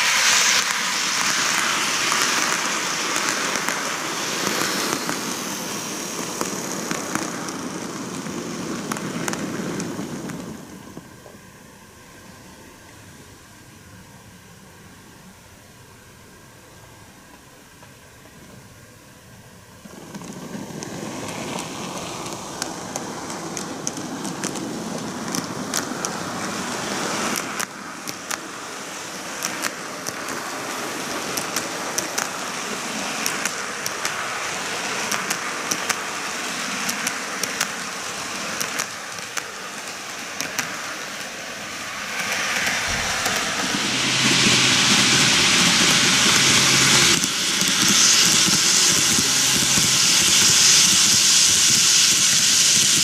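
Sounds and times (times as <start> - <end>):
model train wheels whirring: 0.0 - 53.0
clicks at rail joints: 19.8 - 26.2, 35.0 - 36.1, 38.6 - 41.3.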